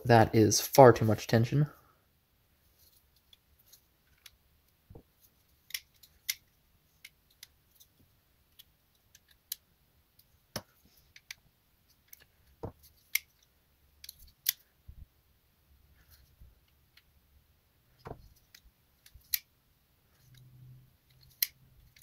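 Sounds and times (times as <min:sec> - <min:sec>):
folding knife clicks: 0:19.2 - 0:19.5.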